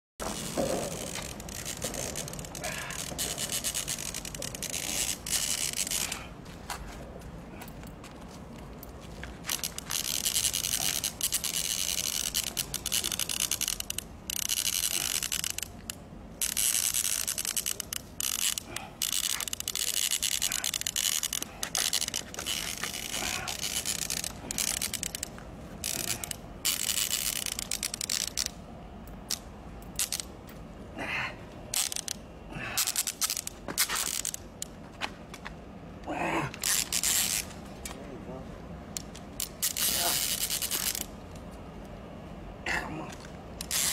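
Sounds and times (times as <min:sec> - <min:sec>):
fishing reel whirring: 0:00.2 - 0:06.2, 0:09.5 - 0:28.6, 0:31.7 - 0:32.2, 0:32.8 - 0:34.4, 0:36.6 - 0:37.6, 0:39.0 - 0:41.1, 0:43.6 - 0:43.9.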